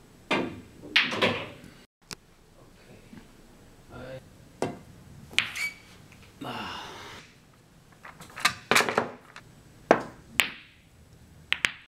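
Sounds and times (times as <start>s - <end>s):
pool balls clacking: 0.3s - 1.6s, 7.9s - 10.8s, 11.5s - 11.9s.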